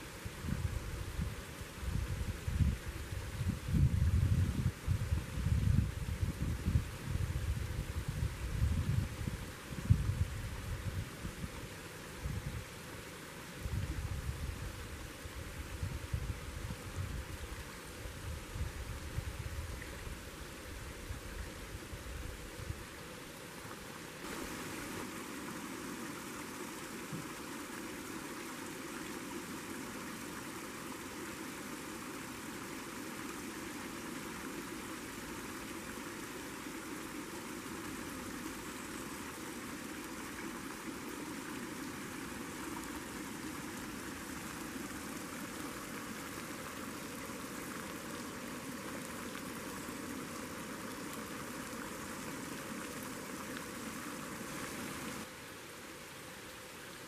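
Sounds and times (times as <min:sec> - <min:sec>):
camp stove burner hissing: 0:24.2 - 0:55.3.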